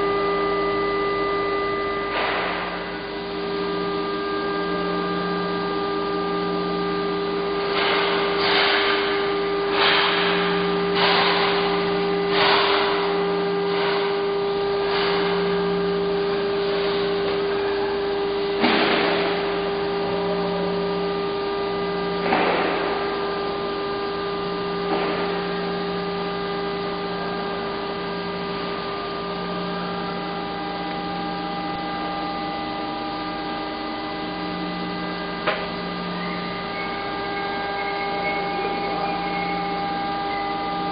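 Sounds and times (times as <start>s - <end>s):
machinery electrical hum: 0.0s - 40.9s
low drone: 30.1s - 40.9s.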